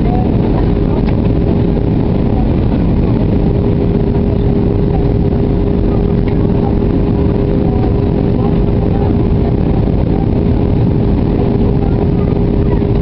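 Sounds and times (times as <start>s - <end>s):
airliner cabin engine drone: 0.0s - 13.0s
steady hum: 0.0s - 13.0s.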